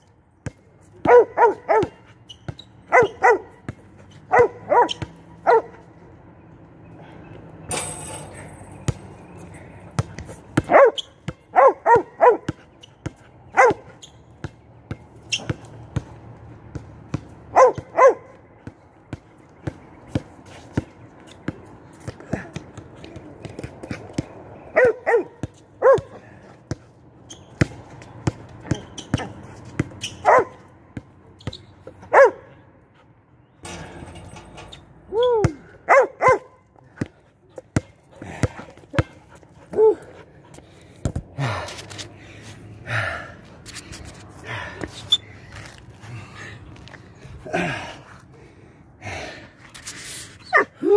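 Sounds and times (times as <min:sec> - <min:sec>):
small dog barking: 0:04.3 - 0:05.7, 0:10.7 - 0:11.0, 0:11.6 - 0:12.4, 0:30.2 - 0:30.6, 0:32.1 - 0:32.4
basketball thudding on concrete: 0:10.0 - 0:11.4, 0:37.7 - 0:39.9, 0:41.0 - 0:41.3.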